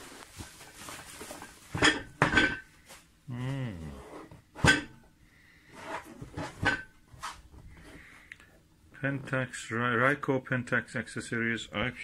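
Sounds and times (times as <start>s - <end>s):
person humming: 3.3s - 4.2s.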